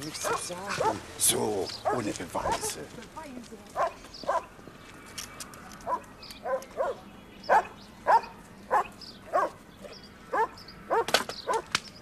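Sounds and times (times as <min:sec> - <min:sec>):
dog barking: 0:00.2 - 0:01.0, 0:01.8 - 0:02.8, 0:03.8 - 0:04.5, 0:05.8 - 0:09.6, 0:10.3 - 0:11.7.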